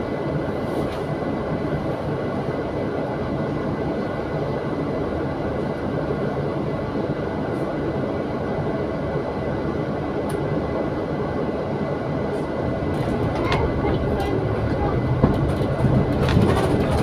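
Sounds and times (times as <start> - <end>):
bus engine idling: 9.5 - 17.0.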